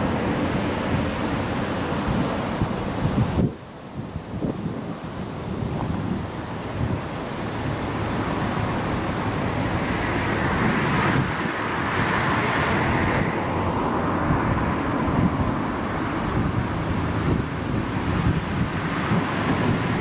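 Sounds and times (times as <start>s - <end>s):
wind: 0.0s - 20.0s
faint high whine: 7.3s - 17.6s.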